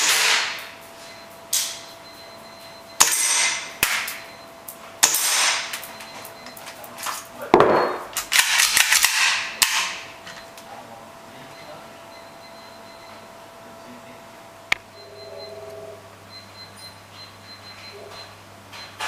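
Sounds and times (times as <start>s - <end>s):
airsoft pistol firing: 0.0s - 0.6s, 5.0s - 5.7s.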